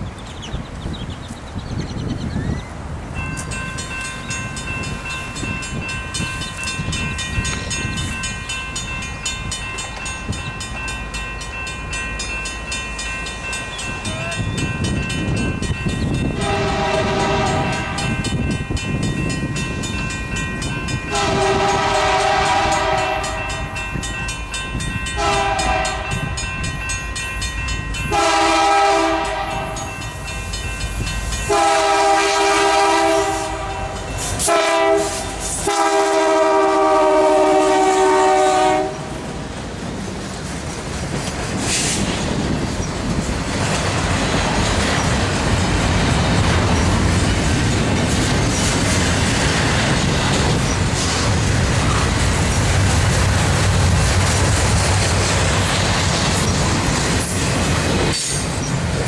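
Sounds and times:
steady high ringing: 3.1 - 32.2
train air horn blasts: 16.3 - 18.4, 21.1 - 23.7, 25.2 - 26.3, 28.1 - 29.9, 31.5 - 39.2.

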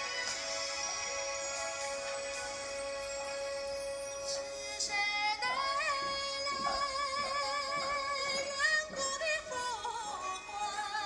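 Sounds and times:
backing music: 0.0 - 11.0
person singing with vibrato: 4.1 - 11.0.

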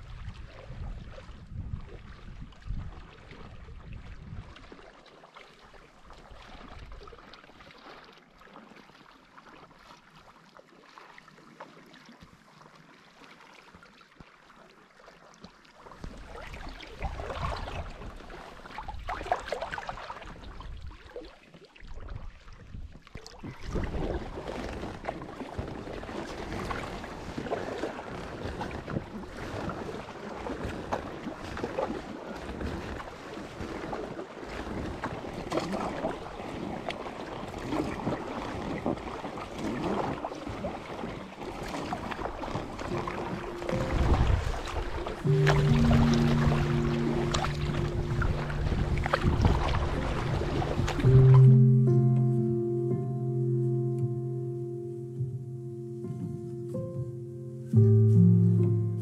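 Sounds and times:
wind buffeting microphone: 0.0 - 4.6, 42.0 - 51.4
water lapping and splashing: 0.0 - 52.6.

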